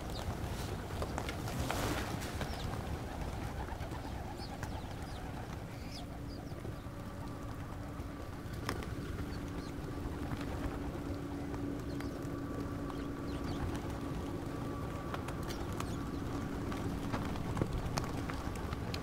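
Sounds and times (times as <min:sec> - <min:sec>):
faint steady hum: 0:00.0 - 0:19.0
pigeons cooing: 0:00.0 - 0:19.0.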